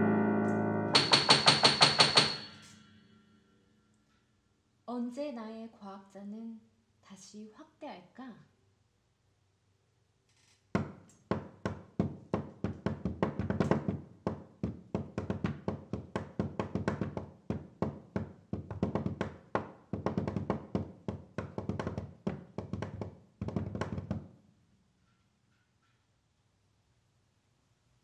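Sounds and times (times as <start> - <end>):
out-of-tune piano playing: 0.0 - 1.4.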